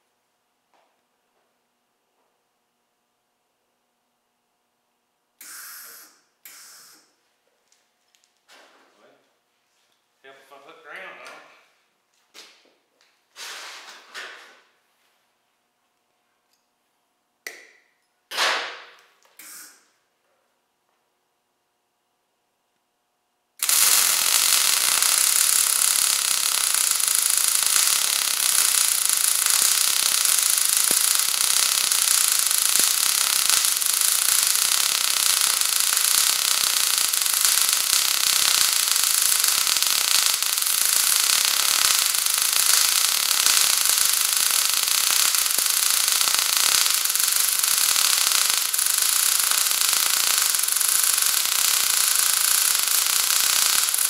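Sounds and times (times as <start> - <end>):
welding arc crackling and hissing: 5.4 - 8.6, 13.3 - 14.8, 17.5 - 20.0, 23.6 - 54.0.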